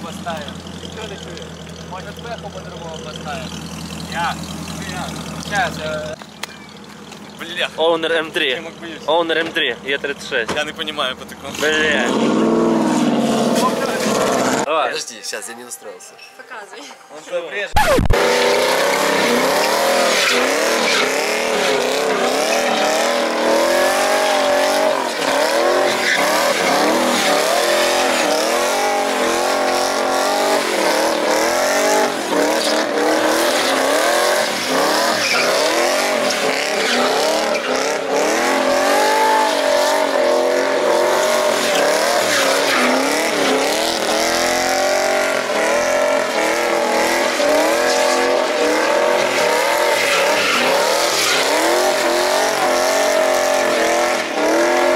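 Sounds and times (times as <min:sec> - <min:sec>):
car engine revving: 0:00.0 - 0:14.7, 0:17.8 - 0:54.9
tyres squealing: 0:11.4 - 0:14.7, 0:17.8 - 0:54.9.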